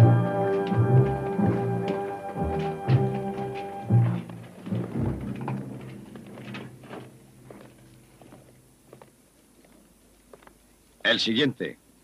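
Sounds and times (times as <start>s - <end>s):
footsteps on stone floor: 0.0s - 10.7s
deep rumbling thumps: 2.9s - 8.8s.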